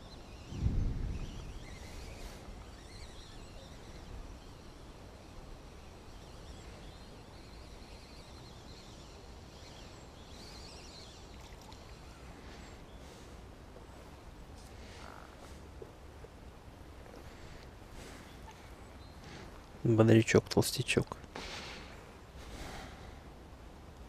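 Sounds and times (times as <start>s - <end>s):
wind rumble on microphone: 0.0s - 2.7s
warbling bird chirps: 0.0s - 13.1s.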